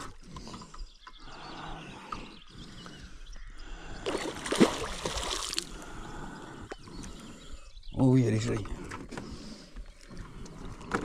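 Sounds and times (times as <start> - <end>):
water splashing and sloshing: 4.0 - 5.8.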